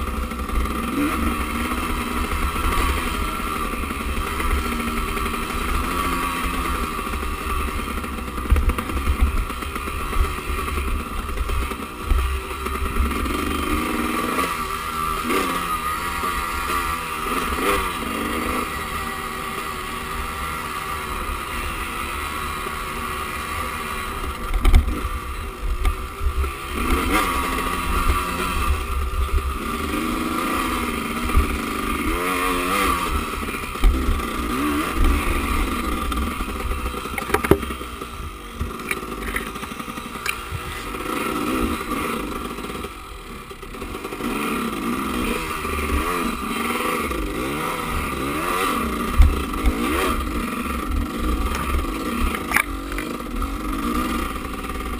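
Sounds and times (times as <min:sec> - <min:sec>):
motorcycle engine revving: 0:00.0 - 0:54.9
motorcycle knocks and clatter: 0:08.2 - 0:13.2, 0:24.4 - 0:25.1, 0:33.8 - 0:35.2, 0:36.1 - 0:37.9, 0:38.5 - 0:39.6, 0:51.2 - 0:53.1.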